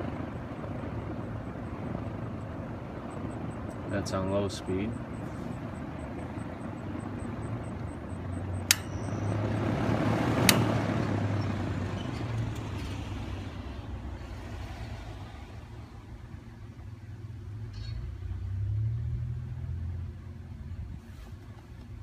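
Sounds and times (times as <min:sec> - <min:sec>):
window fan running: 0:00.0 - 0:22.0
fan rotary switch clicking: 0:08.6 - 0:09.0, 0:10.4 - 0:10.8.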